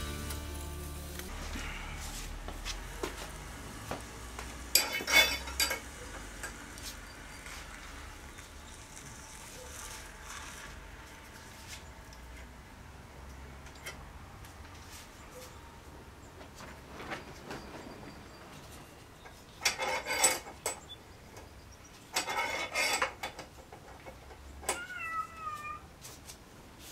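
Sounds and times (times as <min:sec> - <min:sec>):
metal clamps clanking: 0:04.8 - 0:05.8.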